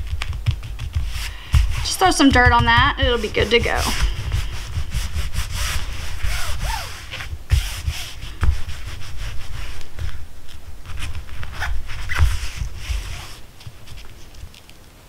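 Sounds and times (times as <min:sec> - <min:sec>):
palms rustling over fabric: 0:00.0 - 0:14.8
soft thumps: 0:00.2 - 0:08.9.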